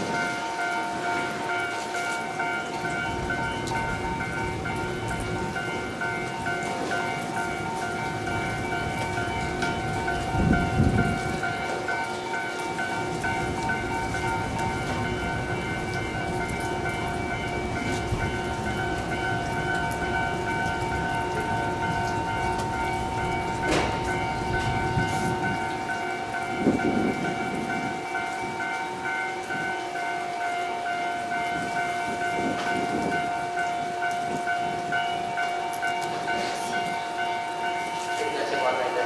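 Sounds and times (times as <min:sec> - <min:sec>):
electric train equipment humming: 0:00.0 - 0:38.1.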